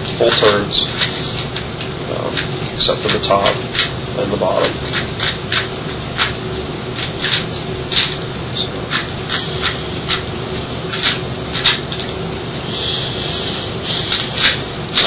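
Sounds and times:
puzzle cube clicking and scraping: 0:00.0 - 0:01.7, 0:07.0 - 0:10.3, 0:10.9 - 0:12.1, 0:13.9 - 0:15.0
faint steady hum: 0:00.0 - 0:15.0.

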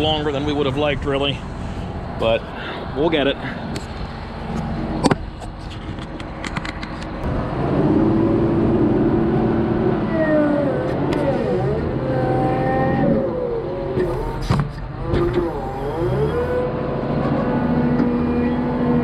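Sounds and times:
clicks and rattles: 0:05.0 - 0:07.2
loader engine revving: 0:07.1 - 0:19.0.

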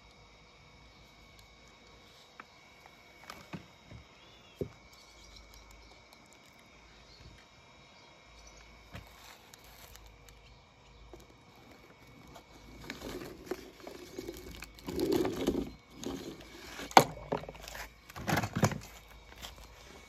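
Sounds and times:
toy car wheels scraping on paper: 0:11.6 - 0:17.0.

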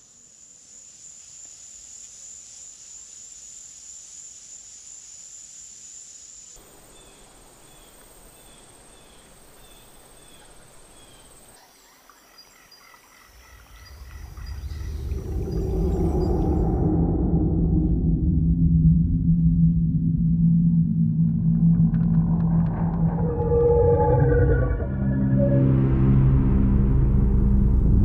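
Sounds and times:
high insect drone: 0:00.0 - 0:28.0
thin high whine: 0:19.2 - 0:28.0
other high calls: 0:22.7 - 0:26.6.

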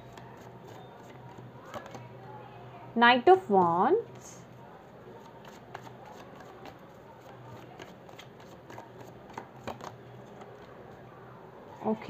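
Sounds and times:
cards clicking and rustling: 0:00.0 - 0:02.1, 0:05.2 - 0:10.8.

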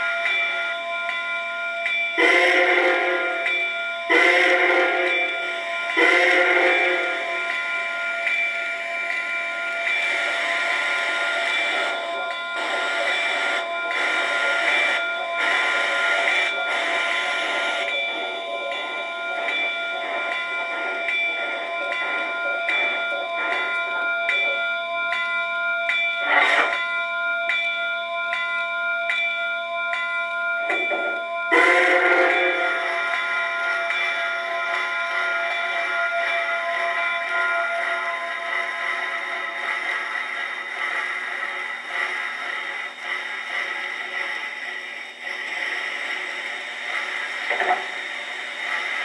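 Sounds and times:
locomotive bell ringing: 0:00.0 - 0:49.0
steam whistle toots: 0:02.2 - 0:07.4, 0:31.5 - 0:39.1.

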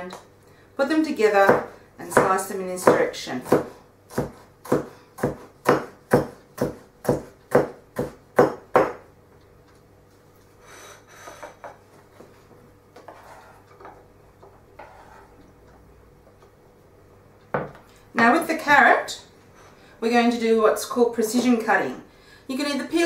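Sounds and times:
knife chopping on wooden board: 0:01.4 - 0:09.0
knife scraping across board: 0:10.6 - 0:12.4, 0:13.0 - 0:14.0, 0:14.8 - 0:15.4.

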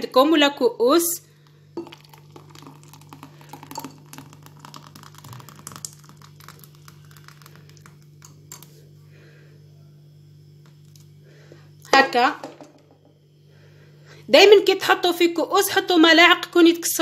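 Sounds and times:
steady low hum: 0:00.0 - 0:16.9
thick liquid pouring into bowl: 0:01.5 - 0:08.8.

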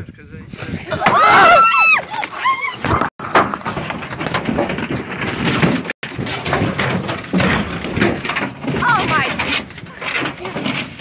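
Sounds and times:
knocking and scuffling in boat: 0:02.8 - 0:11.0.

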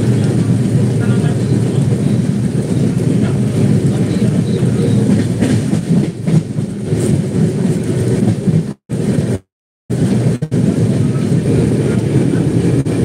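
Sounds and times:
train wheels rumbling on rails: 0:00.0 - 0:13.0
sharp rail clacks: 0:05.0 - 0:08.4.

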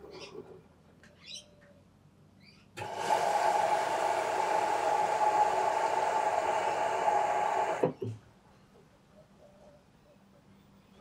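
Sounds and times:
water rushing into machine: 0:02.8 - 0:07.9.

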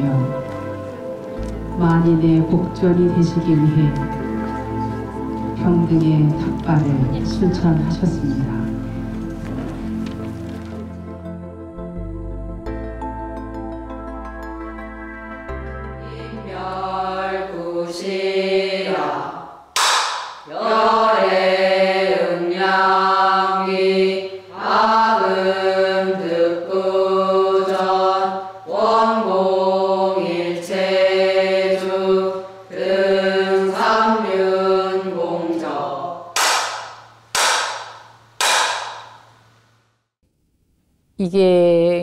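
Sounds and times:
women chanting in unison: 0:16.1 - 0:19.6, 0:20.4 - 0:36.3.

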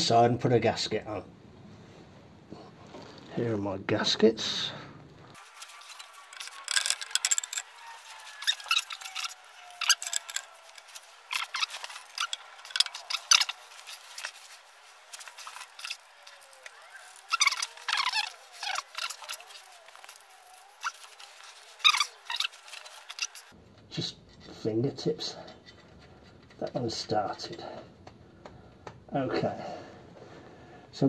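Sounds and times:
rustling and scraping: 0:05.3 - 0:28.1
small metallic clicks and clinks: 0:05.4 - 0:23.5.

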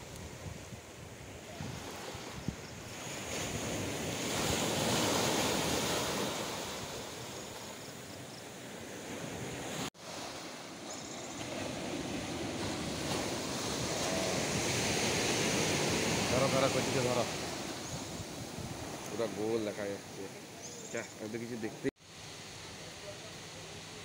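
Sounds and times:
wind on microphone: 0:00.0 - 0:07.4, 0:11.4 - 0:19.1
surf washing onto beach: 0:00.0 - 0:20.6.

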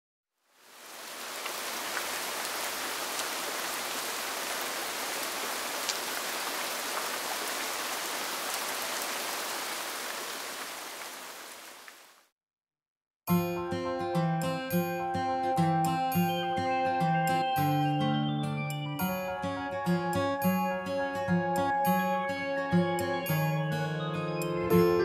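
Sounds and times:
steady rain on pavement: 0:00.5 - 0:12.3
raindrop ticks: 0:05.8 - 0:06.1.

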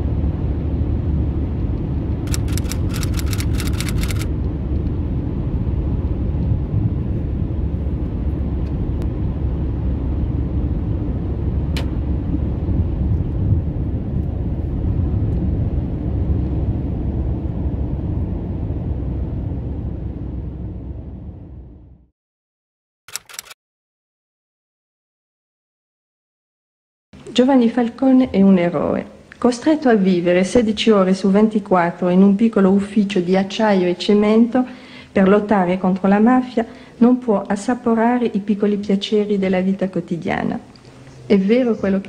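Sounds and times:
car road and engine rumble: 0:00.0 - 0:22.0
rapid ticks: 0:02.3 - 0:04.3
sharp click: 0:02.3 - 0:04.3, 0:11.8 - 0:12.0, 0:23.1 - 0:23.6.

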